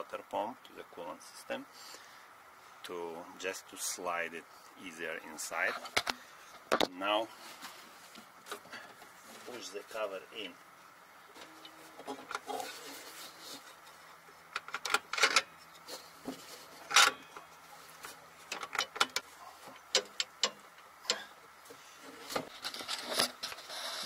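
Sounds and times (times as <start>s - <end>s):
metal cover clicks and scrapes: 14.6s - 15.9s, 16.8s - 17.2s, 22.4s - 24.0s.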